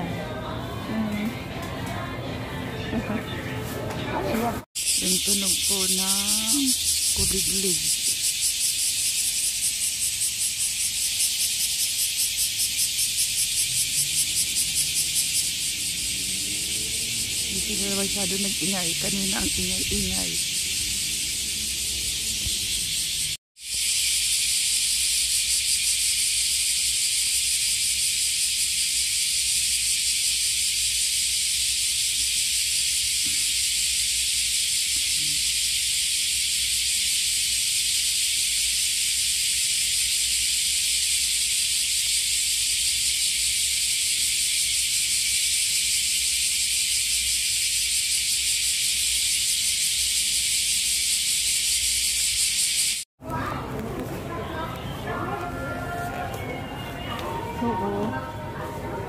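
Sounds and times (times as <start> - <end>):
cicadas buzzing: 4.8 - 53.1.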